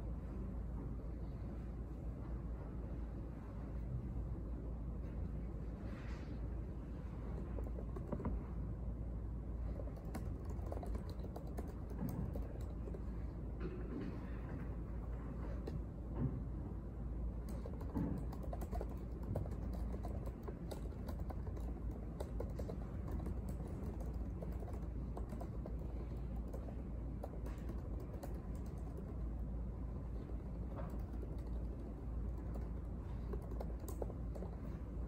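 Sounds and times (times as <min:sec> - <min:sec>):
low background hum: 0:00.0 - 0:35.0
laptop keyboard typing: 0:07.2 - 0:08.4, 0:09.6 - 0:13.3, 0:17.4 - 0:35.0.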